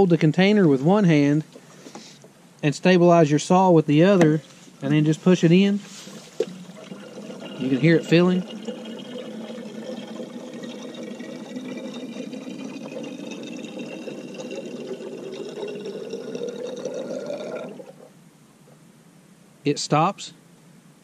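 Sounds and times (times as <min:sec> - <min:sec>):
fuel pouring into a tank: 0:04.3 - 0:18.1.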